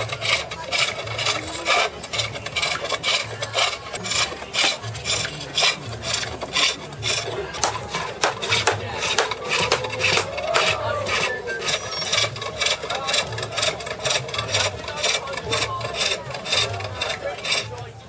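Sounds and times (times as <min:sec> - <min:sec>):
tool rasping on turning wood: 0:00.0 - 0:18.0.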